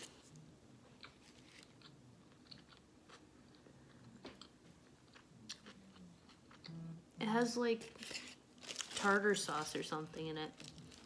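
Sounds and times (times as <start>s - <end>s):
chewing food: 0.8s - 7.0s
foil wrapper crackling: 7.8s - 11.0s.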